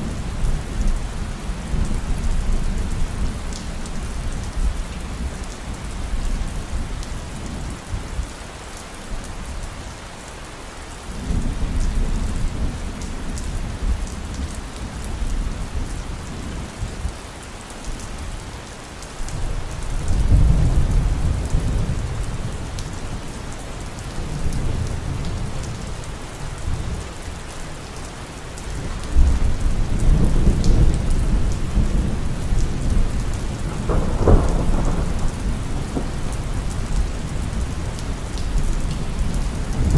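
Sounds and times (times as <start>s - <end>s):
rain hiss: 0.0s - 39.9s
rolling thunder rumbles: 28.8s - 39.9s.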